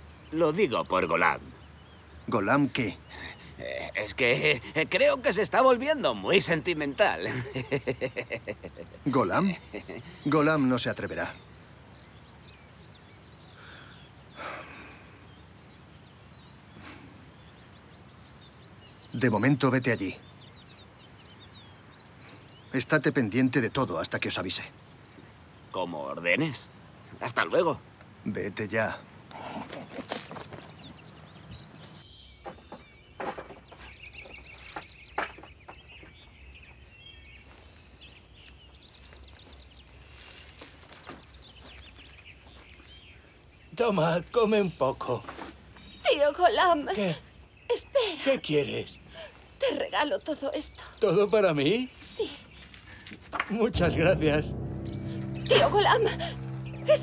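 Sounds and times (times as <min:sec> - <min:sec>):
small birds chirping: 0:00.0 - 0:57.0
faint bird chirps: 0:29.8 - 0:53.1.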